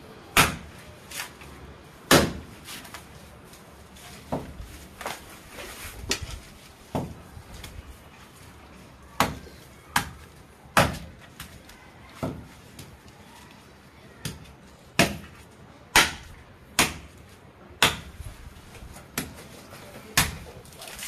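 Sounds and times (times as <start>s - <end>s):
machete chopping coconut husk: 0.3s - 1.4s, 2.1s - 2.6s, 9.2s - 11.5s, 14.2s - 17.2s, 17.8s - 18.2s, 19.0s - 19.5s, 20.1s - 20.5s.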